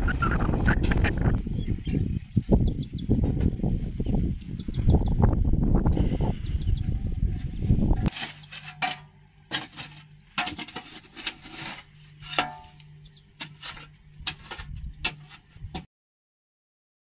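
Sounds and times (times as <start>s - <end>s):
scraping and knocking mud: 8.0s - 15.9s.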